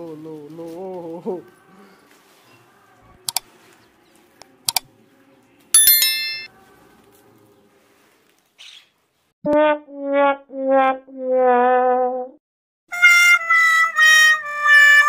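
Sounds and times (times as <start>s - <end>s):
bright bell ding: 5.8s - 6.5s.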